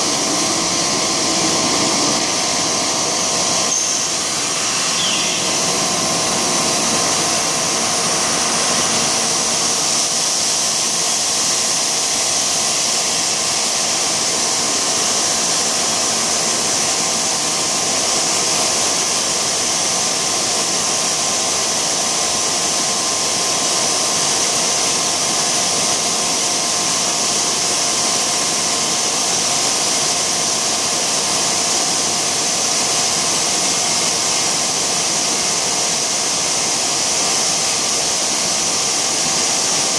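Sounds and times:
machine mechanical drone: 0.0s - 9.0s
high hiss: 0.1s - 8.5s.

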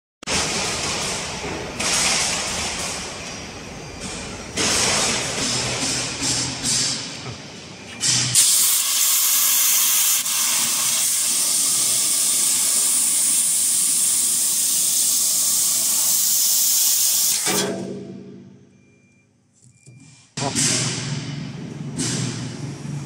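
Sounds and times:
laser cutter gas jet hissing: 8.0s - 17.7s.

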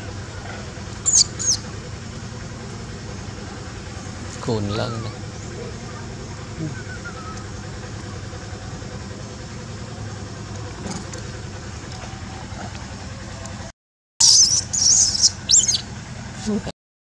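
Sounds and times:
baby monkey screaming: 1.0s - 1.7s, 4.7s - 5.2s, 14.2s - 15.9s.

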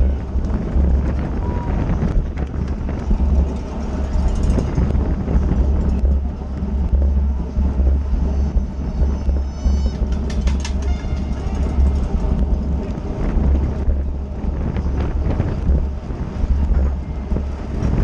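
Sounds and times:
bike rolling rumble: 0.0s - 18.0s
wind buffeting microphone: 0.0s - 18.0s
high squeaks and clicks: 8.4s - 12.0s.

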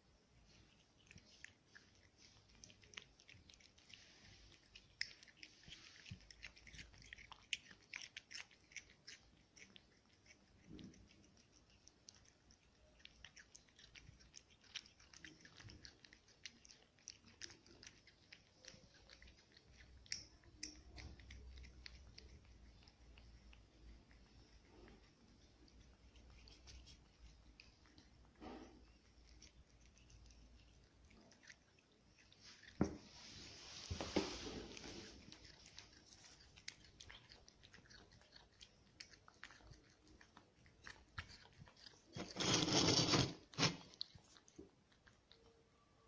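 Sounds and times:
cat chewing food: 0.0s - 46.0s.

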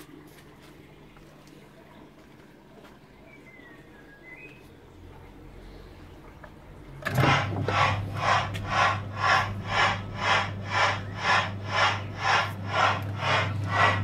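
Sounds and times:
ride motor hum: 7.0s - 14.0s
steam train chuffing effect: 7.1s - 14.0s.

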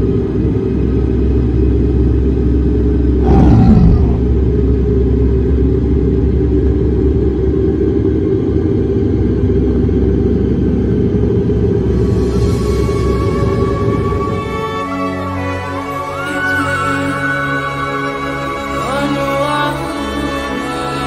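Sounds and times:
deep rumbling drone: 3.1s - 6.0s.

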